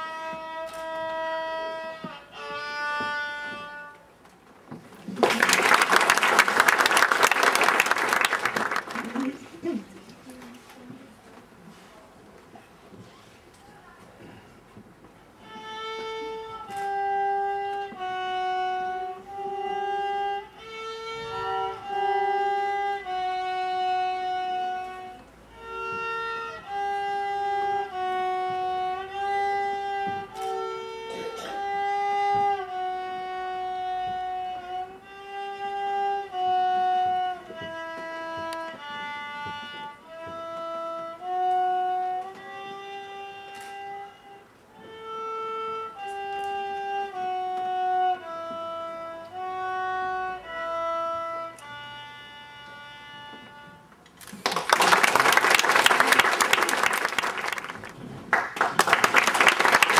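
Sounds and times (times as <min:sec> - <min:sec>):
violin playing slow melody: 0:00.0 - 0:04.3, 0:15.2 - 0:54.2.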